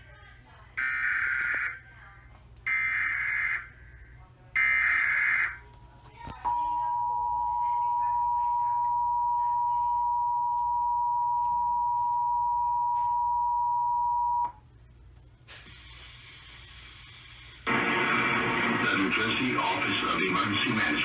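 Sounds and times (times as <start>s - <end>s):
two-tone alert alarm: 2.7s - 3.7s, 4.6s - 5.6s, 6.5s - 14.5s.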